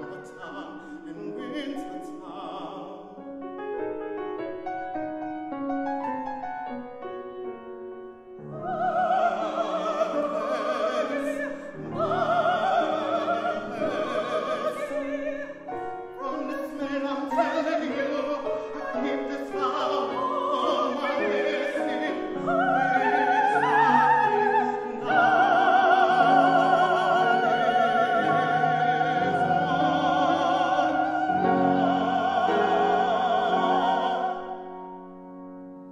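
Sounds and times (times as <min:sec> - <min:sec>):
operatic duet singing: 0:00.0 - 0:03.2, 0:08.5 - 0:35.0
grand piano accompaniment: 0:00.0 - 0:35.9.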